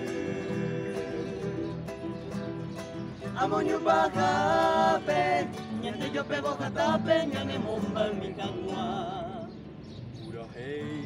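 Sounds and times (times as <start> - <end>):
vocal group singing in harmony: 0.0 - 2.2, 3.1 - 9.6
acoustic guitar: 0.0 - 11.0.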